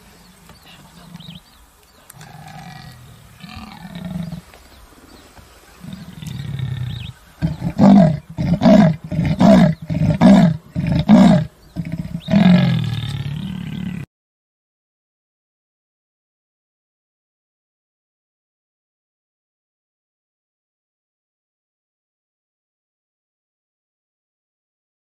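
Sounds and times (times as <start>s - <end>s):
leopard roaring: 2.1s - 4.6s, 5.8s - 14.1s
leopard low grunts: 2.1s - 5.2s, 5.8s - 14.1s.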